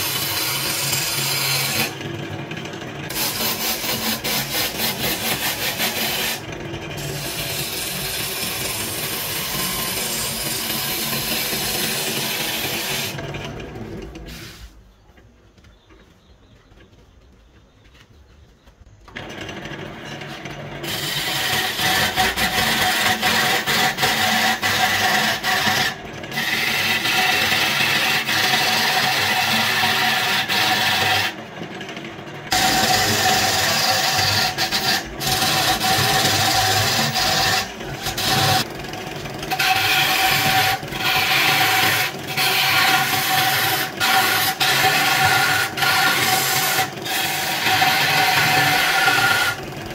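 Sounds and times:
wood lathe humming: 0.0s - 14.6s, 19.0s - 49.9s
gouge scraping wood: 3.1s - 13.2s, 20.8s - 31.3s, 32.5s - 38.7s, 39.5s - 49.6s.

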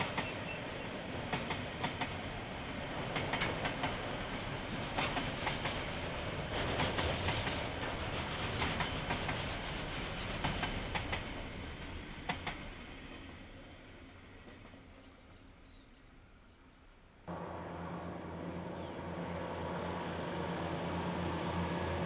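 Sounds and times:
train wheels clacking on rail joints: 0.0s - 0.6s, 1.3s - 2.2s, 3.0s - 4.1s, 4.8s - 11.5s, 12.2s - 12.8s
train rumble: 0.0s - 15.8s, 17.3s - 22.0s.

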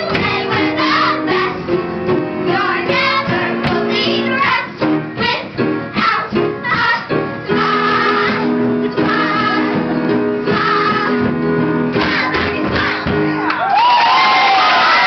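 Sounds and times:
group singing show tune: 0.0s - 1.7s, 2.4s - 5.4s, 6.0s - 13.3s.

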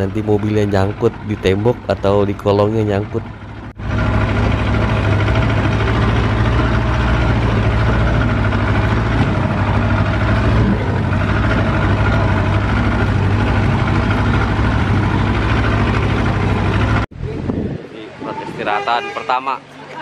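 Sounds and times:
jeep engine running: 0.0s - 18.4s.

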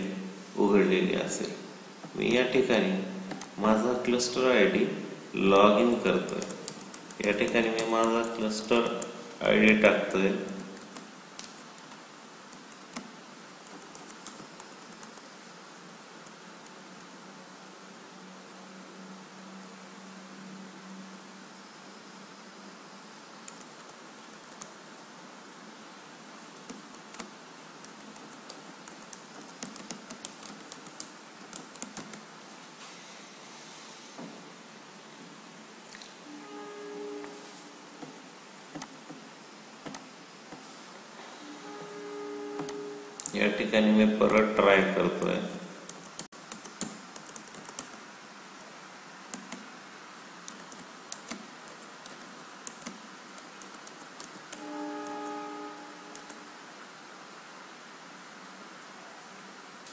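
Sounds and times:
background hiss: 0.0s - 59.9s
keyboard typing: 5.8s - 9.8s, 10.5s - 15.3s, 23.4s - 24.7s, 26.6s - 32.3s, 42.6s - 43.4s, 45.9s - 48.0s, 50.4s - 55.4s, 56.1s - 56.5s.

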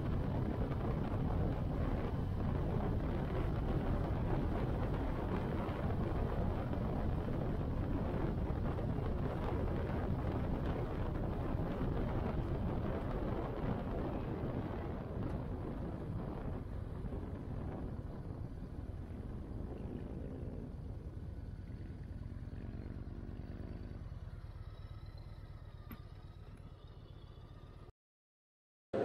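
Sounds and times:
wind rushing over microphone: 0.0s - 22.3s
motorcycle engine cruising: 0.0s - 27.9s.

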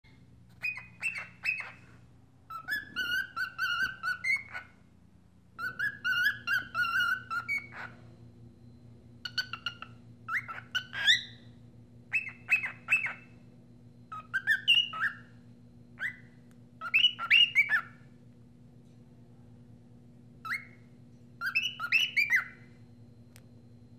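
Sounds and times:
faint steady hum: 0.1s - 23.9s
cockatiel whistling: 0.5s - 1.9s, 2.5s - 4.8s, 5.6s - 8.0s, 9.2s - 13.4s, 14.1s - 15.4s, 16.0s - 18.2s, 20.4s - 22.8s.

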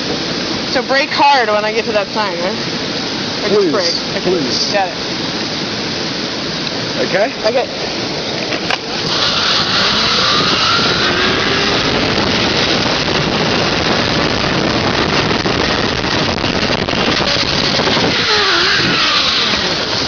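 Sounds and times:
wind rushing past microphone: 2.5s - 20.0s
zipline pulley whirring: 8.7s - 13.1s, 16.7s - 20.0s.

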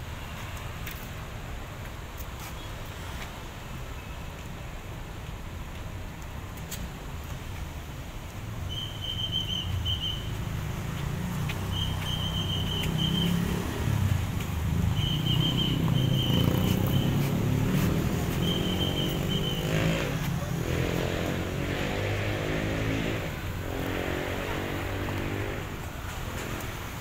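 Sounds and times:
road traffic rumble: 0.0s - 27.0s
high chirping: 8.7s - 10.4s, 11.6s - 13.6s, 14.8s - 20.1s
vehicle engine accelerating: 10.4s - 26.8s.

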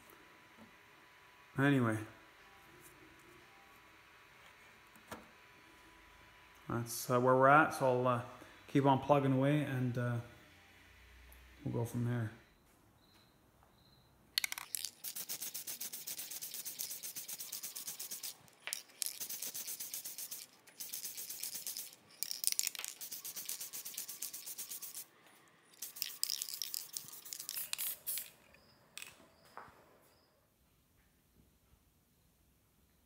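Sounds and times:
spray paint can hissing: 14.4s - 25.1s, 25.7s - 28.4s.

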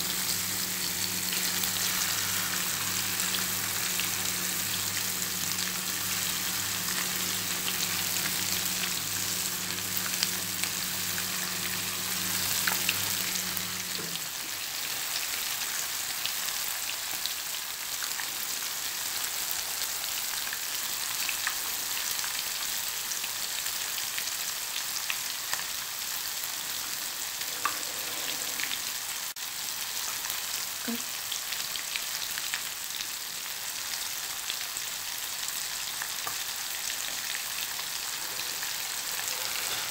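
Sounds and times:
fish sizzling in hot oil: 0.0s - 39.9s.

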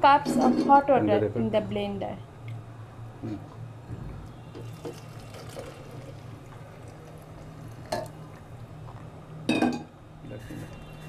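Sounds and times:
hot water pouring into blender jar: 4.5s - 8.5s.

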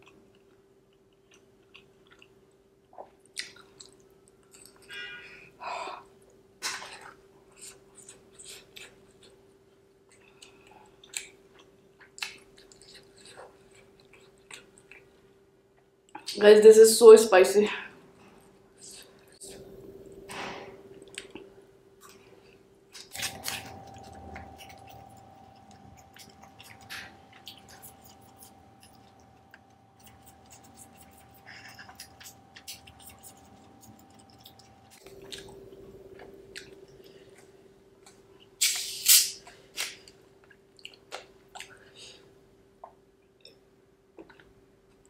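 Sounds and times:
chewing and wet mouth clicks: 0.0s - 5.0s, 10.1s - 15.1s, 21.0s - 39.6s, 40.4s - 41.9s
faint steady hum: 0.0s - 45.0s
loud hiss of noise: 38.6s - 39.4s.

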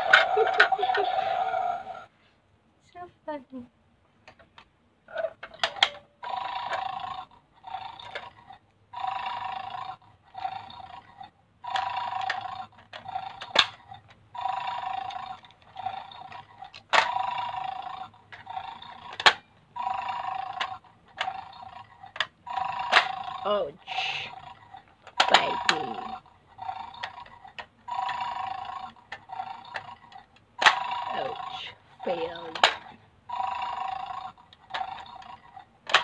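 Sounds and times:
plastic toy clicks: 11.7s - 14.2s, 18.3s - 19.4s, 24.9s - 30.9s, 32.4s - 32.9s, 34.5s - 36.0s.

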